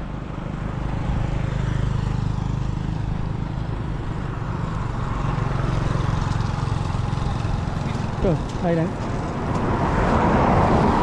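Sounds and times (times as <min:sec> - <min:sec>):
vehicle engine running: 0:00.0 - 0:09.7
tyre noise on wet road: 0:00.0 - 0:11.0
wind: 0:00.0 - 0:11.0.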